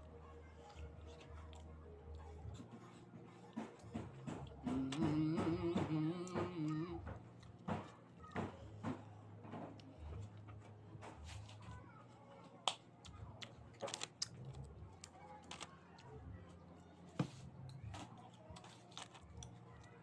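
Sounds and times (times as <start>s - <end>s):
crunchy wafer chewing: 12.7s - 16.1s, 17.7s - 20.0s.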